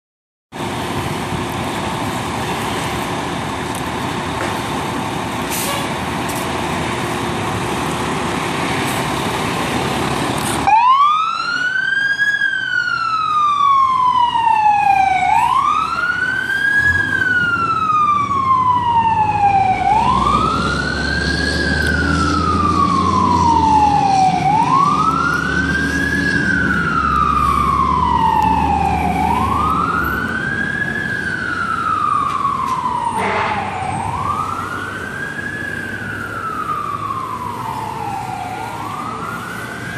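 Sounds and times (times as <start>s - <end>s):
truck engine rumbling: 0.5s - 39.9s
fire engine siren wailing: 0.6s - 39.9s.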